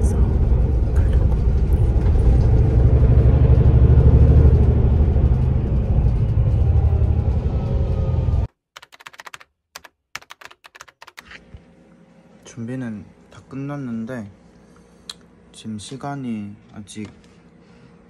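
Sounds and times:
bus rumbling: 0.0 - 8.5
keyboard typing clicks: 8.8 - 11.2.

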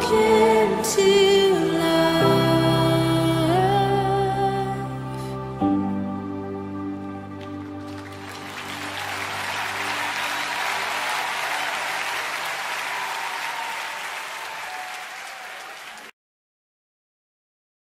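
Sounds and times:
background music: 0.0 - 12.7
crowd applause: 7.4 - 16.1.

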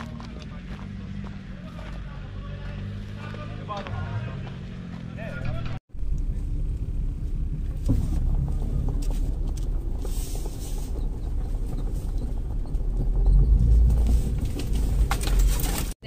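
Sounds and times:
engine rumble: 0.0 - 16.0
body and suspension rattling: 4.5 - 16.0.

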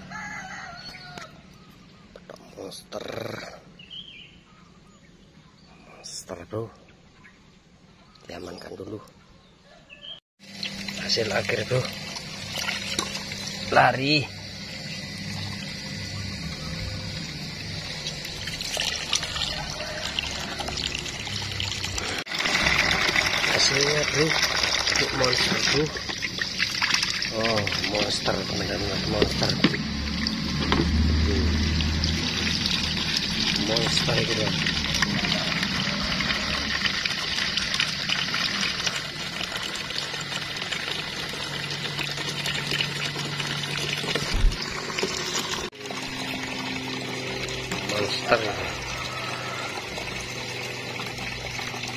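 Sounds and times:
water pouring into a plastic tub: 10.4 - 51.9.

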